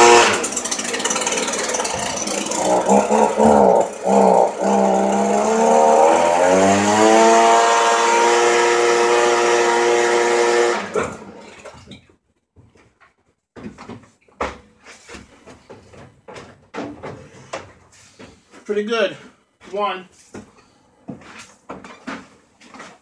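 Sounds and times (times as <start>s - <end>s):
small two-stroke engine running: 0.0s - 11.4s.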